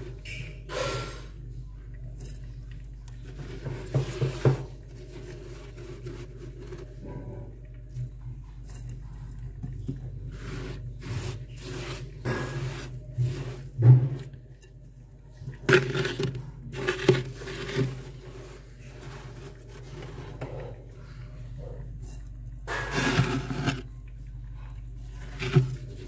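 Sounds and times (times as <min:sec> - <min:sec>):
fingers scraping freezer frost: 0:10.2 - 0:14.3, 0:15.6 - 0:20.4, 0:22.7 - 0:23.9, 0:25.1 - 0:26.0.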